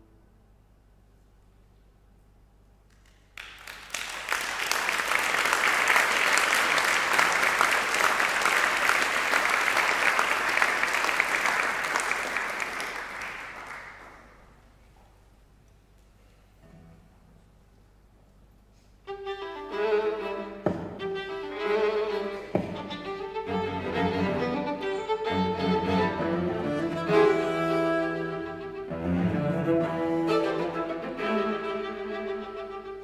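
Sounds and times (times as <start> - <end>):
audience applauding: 2.9 - 14.6.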